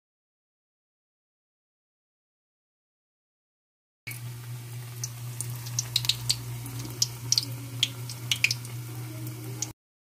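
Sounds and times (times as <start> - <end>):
steady low hum: 4.1 - 9.7
food frying in hot oil: 4.1 - 9.8.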